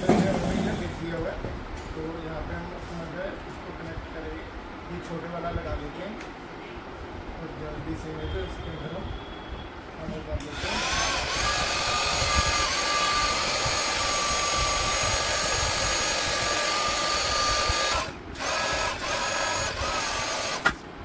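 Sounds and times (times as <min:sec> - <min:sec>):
electric air pump whining: 0:10.4 - 0:20.8.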